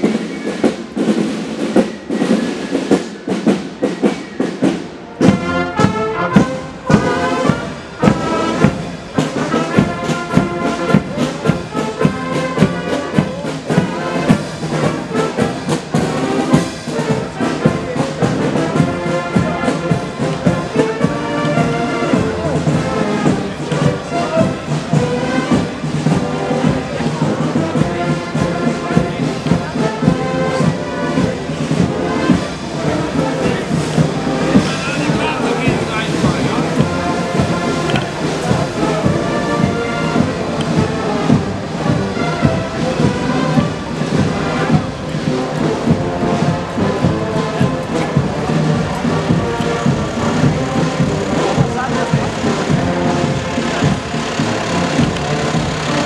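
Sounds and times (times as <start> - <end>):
bass drum and cymbal beat: 0.0 - 56.0
marching band playing: 0.0 - 56.0.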